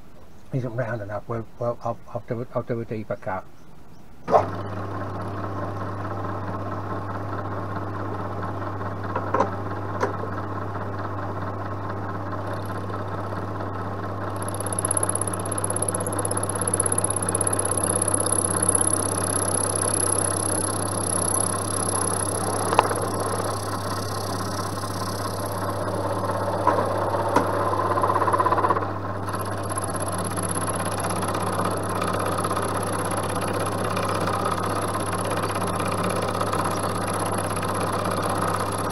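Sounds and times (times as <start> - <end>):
endmill cutting metal: 4.3 - 38.9
milling machine motor hum: 4.3 - 38.9
thin high whine: 12.4 - 37.2
sharp ticks: 12.5 - 12.9, 14.3 - 38.9.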